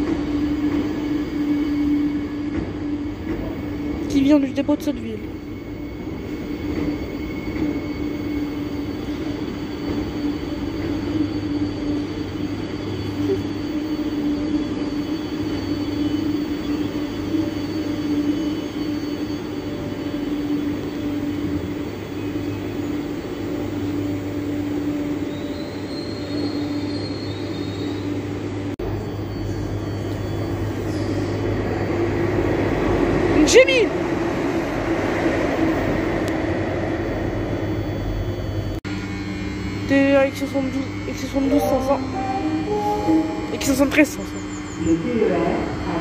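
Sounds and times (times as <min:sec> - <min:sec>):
train humming low: 0:00.0 - 0:46.0
diesel locomotive rumble: 0:35.9 - 0:46.0.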